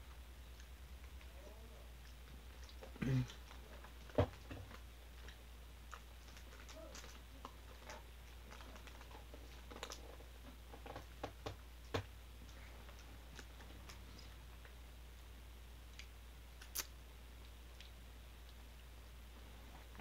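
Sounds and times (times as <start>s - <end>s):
steady low hum: 0.0s - 20.0s
faint clicks and taps: 2.0s - 15.3s.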